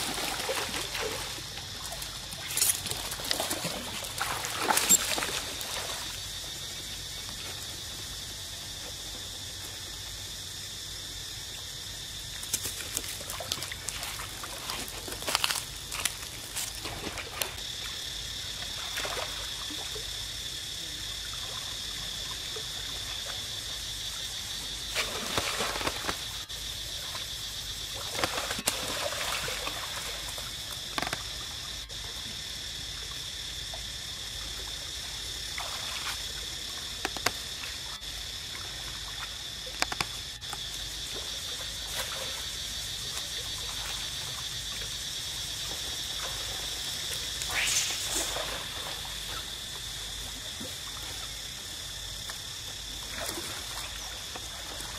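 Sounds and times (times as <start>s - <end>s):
water trickling and splashing: 0.0s - 8.0s, 12.4s - 20.3s, 24.6s - 31.8s, 35.4s - 36.9s, 41.0s - 51.7s
high insect drone: 0.0s - 54.9s
sharp splashes: 25.0s - 26.3s, 47.4s - 49.6s.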